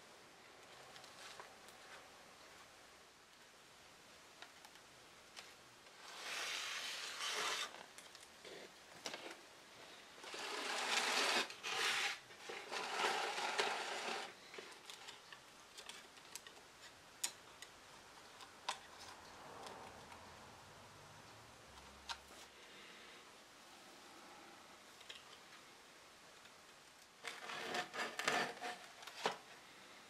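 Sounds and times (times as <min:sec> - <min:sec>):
wooden pieces scraping on workbench: 0:06.0 - 0:07.8, 0:10.2 - 0:14.4, 0:27.2 - 0:29.4.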